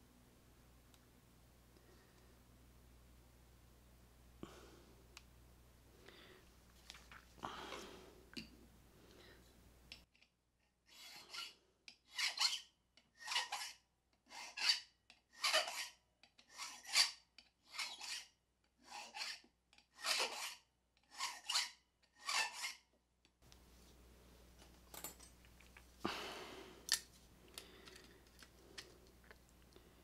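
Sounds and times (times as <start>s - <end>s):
hand file rasping on key: 10.9s - 12.6s, 13.2s - 14.8s, 15.4s - 15.9s, 16.5s - 19.4s, 20.0s - 22.8s.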